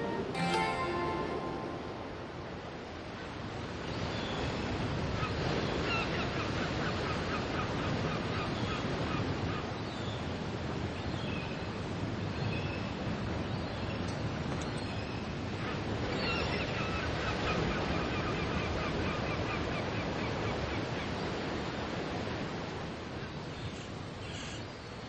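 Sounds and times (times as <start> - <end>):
ocean surf: 0.0 - 3.8.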